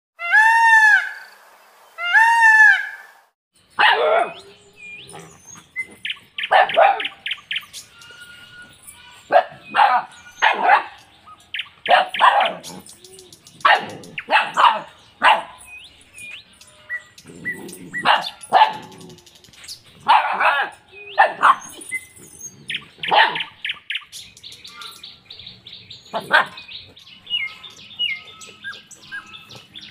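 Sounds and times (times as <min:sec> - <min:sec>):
small birds chirping: 0:03.6 - 0:29.9
puppies barking and yipping: 0:03.7 - 0:25.3, 0:25.9 - 0:29.9.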